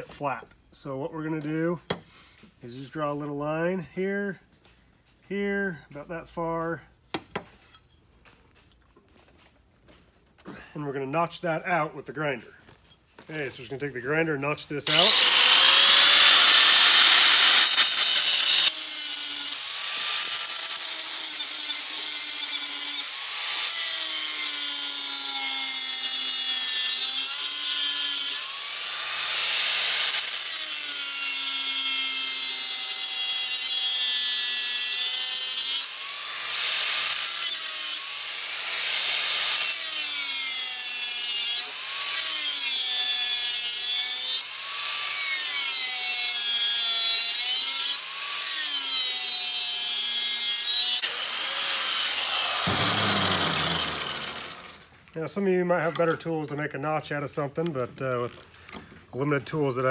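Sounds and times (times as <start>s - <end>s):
angle grinder cutting metal: 14.8s - 55.0s.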